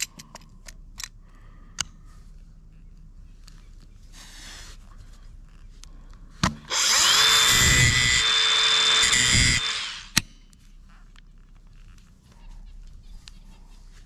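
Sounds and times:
angle grinder whining: 6.7s - 10.2s
disc grinding steel screw: 6.7s - 10.2s.

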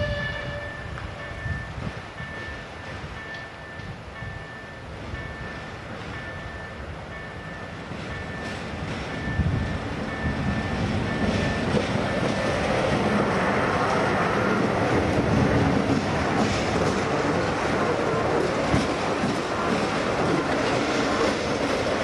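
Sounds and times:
level crossing signal ping: 0.0s - 12.6s
diesel locomotive engine rumble: 0.0s - 22.0s
train wheels on rails: 0.0s - 22.0s.

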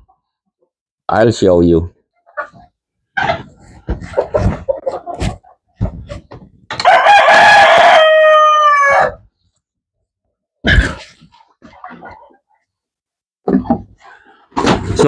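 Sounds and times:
rooster crowing: 6.8s - 9.3s.

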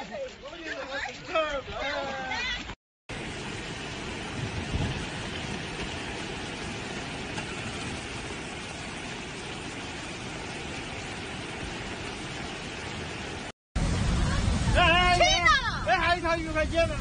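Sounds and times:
river water rushing: 3.1s - 16.3s.

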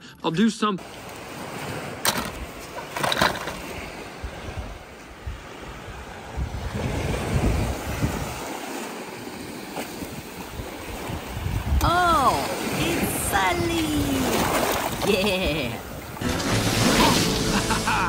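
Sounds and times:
surf washing on sand beach: 0.8s - 18.0s
wind buffeting microphone: 3.6s - 8.6s, 9.9s - 14.7s.

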